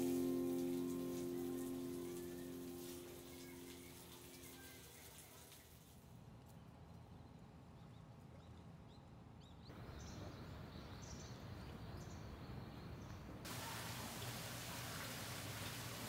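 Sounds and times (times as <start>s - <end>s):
steady hiss: 0.0s - 6.0s, 13.5s - 16.0s.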